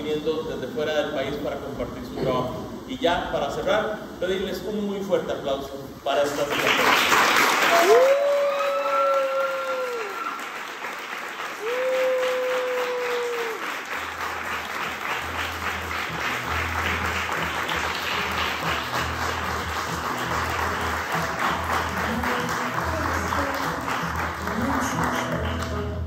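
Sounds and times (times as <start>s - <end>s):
audience applauding: 6.4s - 26.0s
audience cheering: 7.5s - 14.0s.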